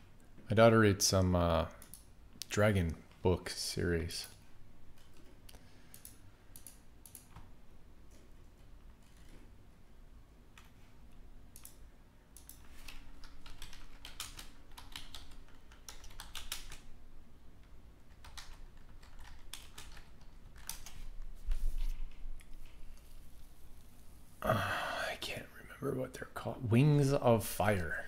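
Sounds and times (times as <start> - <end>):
typing on a computer keyboard: 1.8 - 2.1, 5.0 - 7.5, 11.5 - 16.9, 17.6 - 21.0.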